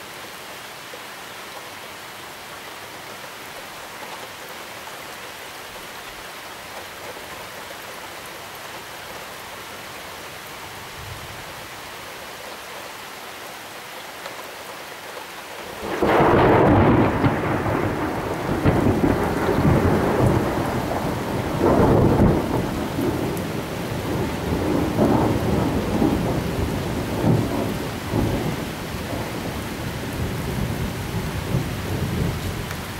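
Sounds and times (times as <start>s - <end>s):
heavy rain hissing: 0.0s - 32.9s
rumbling thunder: 15.8s - 32.6s.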